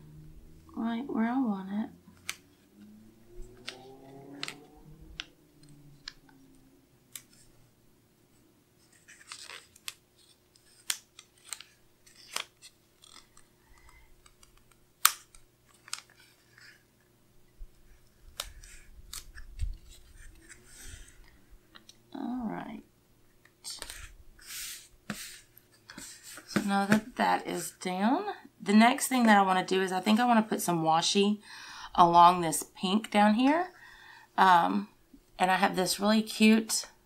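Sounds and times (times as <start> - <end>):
paper rustling and crinkling: 8.8 - 13.5.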